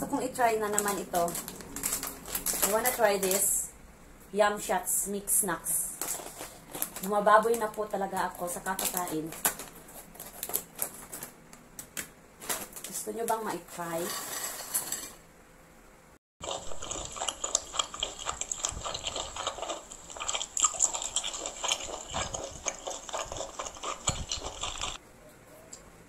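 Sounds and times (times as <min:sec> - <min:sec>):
crisp chewing: 0:00.6 - 0:03.6, 0:06.0 - 0:11.4, 0:16.4 - 0:25.0.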